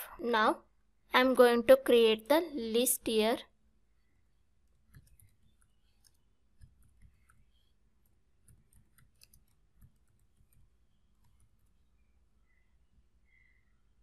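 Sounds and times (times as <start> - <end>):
keyboard typing clicks: 4.7 - 11.8.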